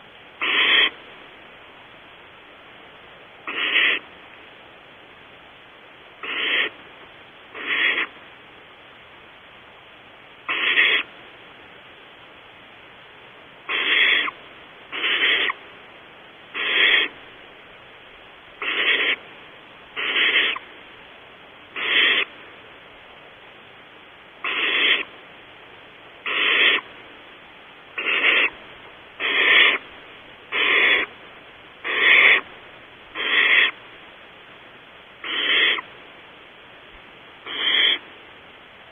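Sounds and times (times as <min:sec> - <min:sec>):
owl nestlings hissing: 0:00.0 - 0:01.1, 0:03.4 - 0:04.1, 0:06.2 - 0:06.8, 0:07.4 - 0:08.2, 0:10.4 - 0:11.1, 0:13.6 - 0:15.7, 0:16.5 - 0:17.4, 0:18.5 - 0:19.3, 0:19.9 - 0:20.8, 0:21.7 - 0:22.4, 0:24.4 - 0:25.2, 0:26.2 - 0:27.0, 0:27.8 - 0:33.8, 0:35.1 - 0:36.0, 0:37.4 - 0:38.1.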